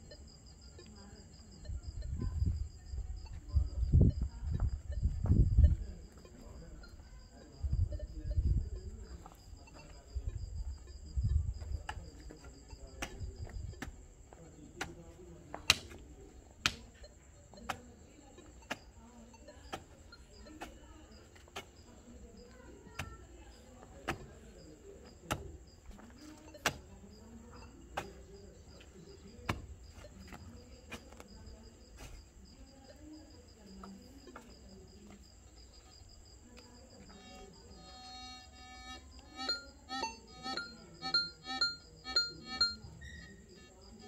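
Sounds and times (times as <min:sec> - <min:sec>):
crickets chirping: 0:00.0 - 0:44.0
pickaxe striking packed dirt: 0:14.8 - 0:16.0.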